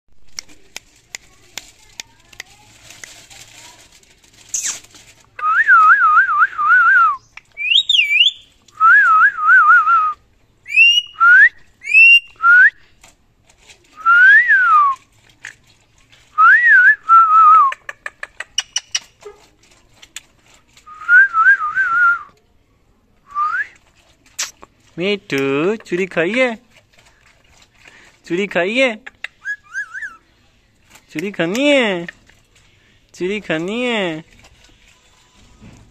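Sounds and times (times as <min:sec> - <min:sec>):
warbling whistled phrases: 0:05.4 - 0:12.7, 0:29.4 - 0:30.2
sharp rising whistles: 0:05.6 - 0:10.0.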